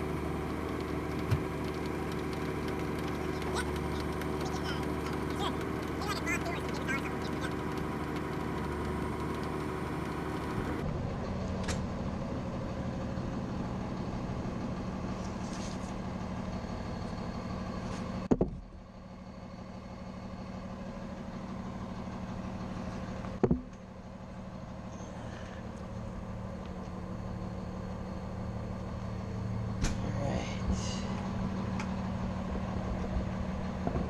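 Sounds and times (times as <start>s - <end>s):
low mechanical drone: 0.0s - 34.0s
sharp knocks: 23.4s - 23.8s.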